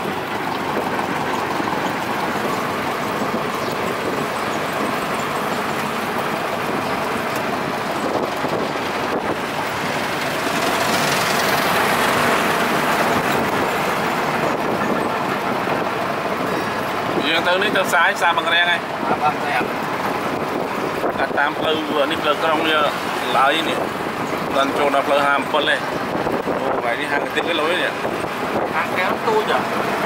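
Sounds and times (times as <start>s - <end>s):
vehicle passing close by: 0.0s - 17.2s
road traffic noise: 0.0s - 30.0s.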